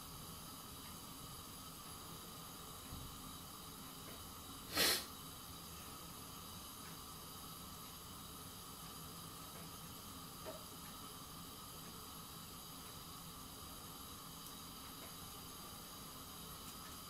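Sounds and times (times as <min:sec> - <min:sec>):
gas burner hissing: 0:00.0 - 0:17.0
faint tick: 0:00.8 - 0:01.0.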